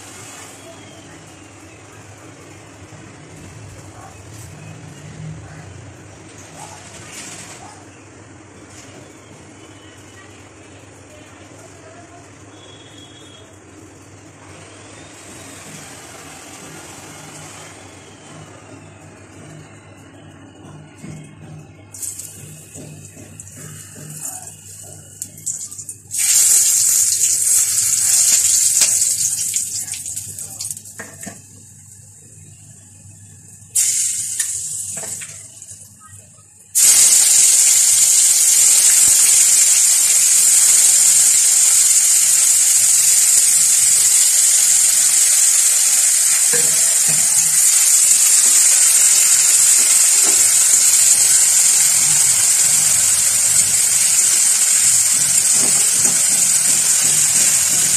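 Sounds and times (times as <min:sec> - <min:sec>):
onion sizzling in hot oil: 0:22.0 - 0:30.7, 0:33.8 - 0:35.3, 0:36.8 - 0:57.9.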